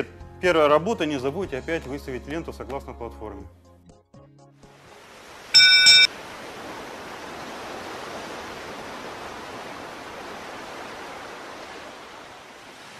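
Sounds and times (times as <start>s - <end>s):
sea surf rushing: 4.8s - 12.9s
bright chime: 5.6s - 6.1s.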